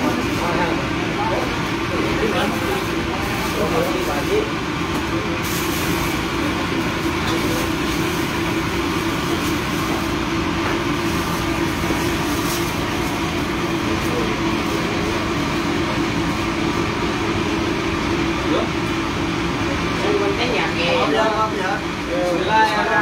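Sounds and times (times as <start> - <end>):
ship machinery humming: 0.0 - 23.0.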